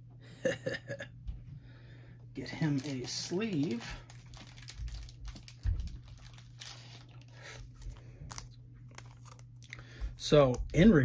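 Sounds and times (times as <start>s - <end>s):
thin plastic crinkling: 2.4s - 10.0s.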